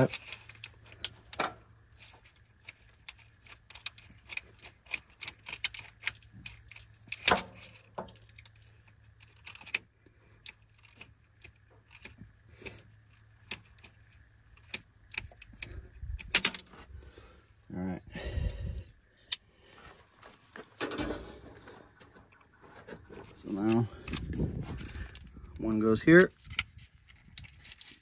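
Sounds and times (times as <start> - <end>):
light clicks and rattles: 0.0 - 16.9.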